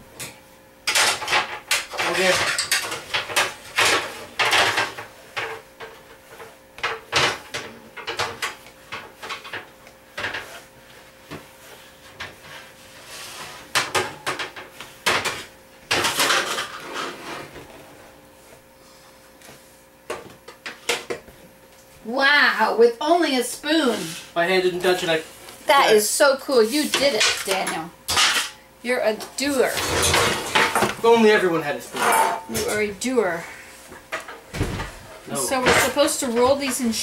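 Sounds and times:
metal pans clattering: 0:00.9 - 0:10.6, 0:13.7 - 0:17.5, 0:26.8 - 0:28.6, 0:29.2 - 0:31.0, 0:31.9 - 0:32.8, 0:34.1 - 0:36.9.

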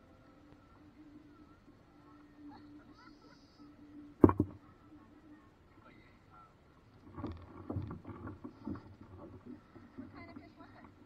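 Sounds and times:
paddle knocking boat hull: 0:04.2 - 0:04.6.

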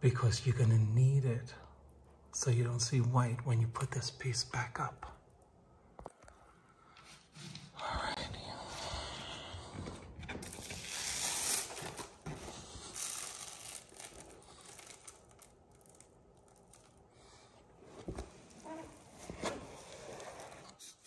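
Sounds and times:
wallpaper rustling and crinkling: 0:10.3 - 0:21.0.

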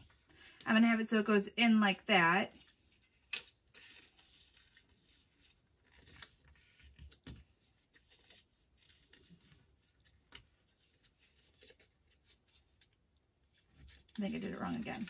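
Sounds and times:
cardstock being folded: 0:02.5 - 0:15.0.

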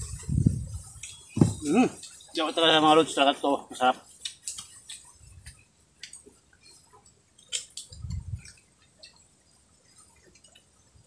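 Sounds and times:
dull low thump: 0:01.3 - 0:01.8.

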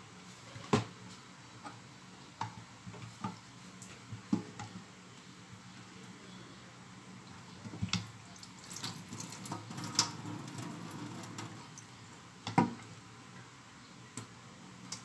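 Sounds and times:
meat squishing in water: 0:08.3 - 0:09.7.

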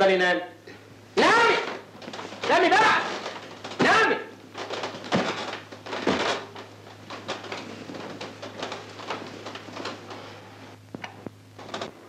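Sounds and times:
low steady hum: 0:00.0 - 0:12.0
bedsheets rustling and swishing: 0:04.4 - 0:10.8.

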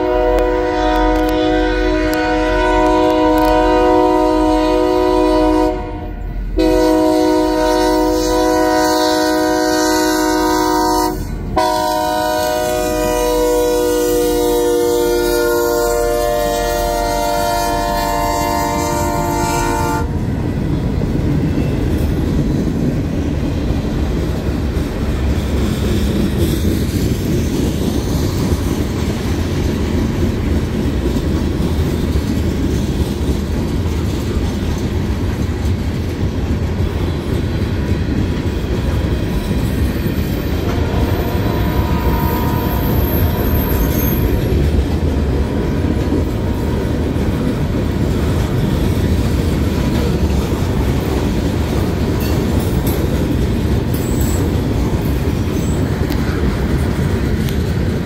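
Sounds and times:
locomotive horn chord: 0:00.0 - 0:20.2, 0:40.6 - 0:43.5
train rumbling past: 0:00.0 - 0:58.0
wheels clicking over rail joints: 0:20.4 - 0:40.9, 0:43.4 - 0:58.0.

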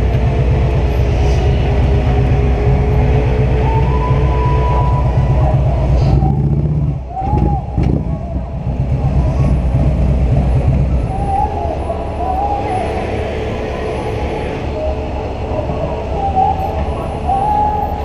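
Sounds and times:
motorcycle engine running: 0:00.0 - 0:11.4.

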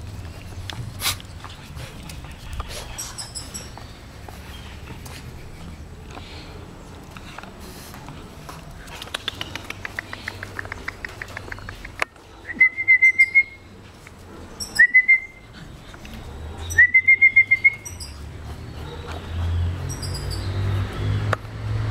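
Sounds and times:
bird chirps: 0:16.6 - 0:20.8.

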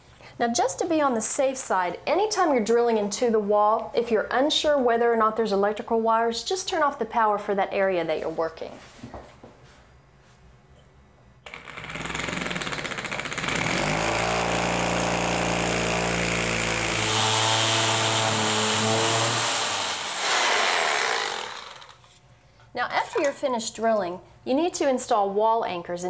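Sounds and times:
hammer drill boring through tile: 0:11.5 - 0:22.0.

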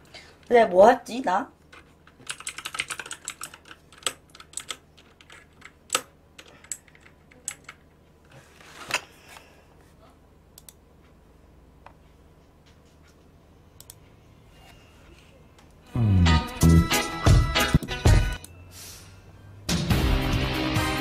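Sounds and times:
keyboard typing: 0:01.7 - 0:07.8.

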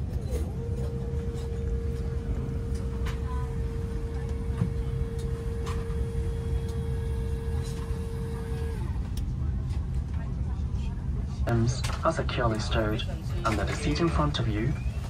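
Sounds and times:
low steady rumble: 0:00.0 - 0:15.0
electric seat motor whirring: 0:00.9 - 0:09.0.

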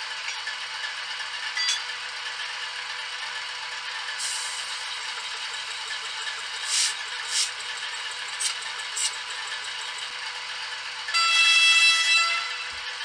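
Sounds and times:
model locomotive engine sound: 0:00.0 - 0:13.0
short air hisses: 0:06.6 - 0:07.5.

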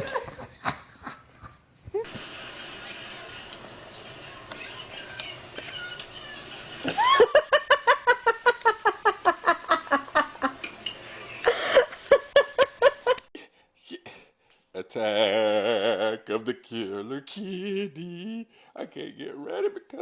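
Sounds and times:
person laughing hard: 0:00.0 - 0:02.1, 0:06.9 - 0:10.6.

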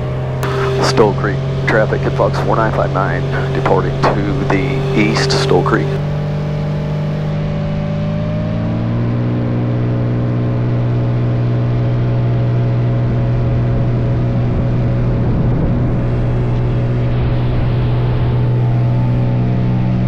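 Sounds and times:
light aircraft engine and propeller: 0:00.0 - 0:20.0.

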